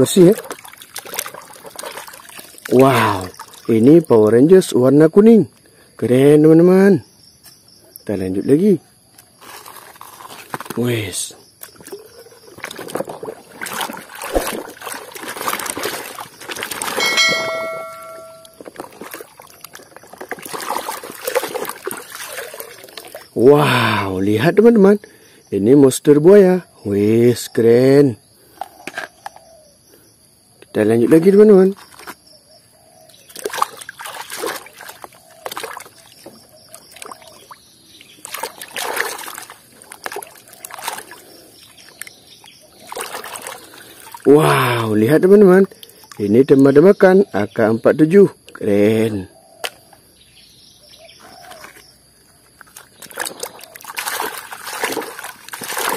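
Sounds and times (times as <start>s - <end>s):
water sloshing in plastic tub: 0.0s - 3.9s, 9.3s - 23.4s, 31.3s - 32.3s, 33.1s - 44.4s, 51.2s - 55.9s
bell-like chime: 17.0s - 18.6s.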